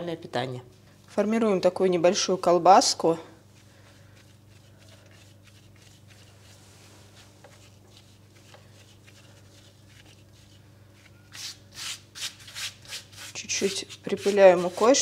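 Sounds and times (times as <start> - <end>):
steady low hum: 0.0 - 15.0
hands rubbing dough: 3.4 - 15.0.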